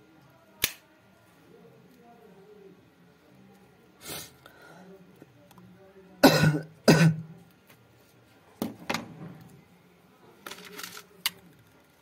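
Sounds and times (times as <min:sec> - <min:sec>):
man coughing: 0:06.2 - 0:07.2
plastic sheet crinkling: 0:10.4 - 0:12.0.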